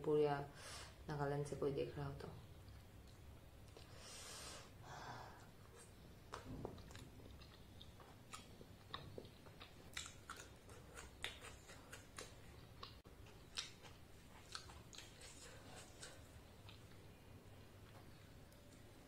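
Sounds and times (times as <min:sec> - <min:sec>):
person chewing food: 0:05.7 - 0:19.0.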